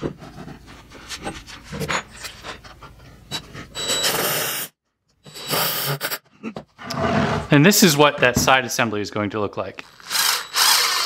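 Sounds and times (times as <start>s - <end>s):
cordless drill whirring: 9.8s - 11.0s.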